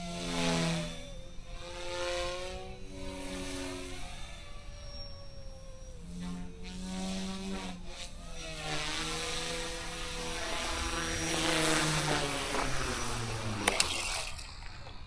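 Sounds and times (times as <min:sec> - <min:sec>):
rc helicopter motor whine: 0:00.0 - 0:15.0
landing clicks: 0:11.5 - 0:15.0.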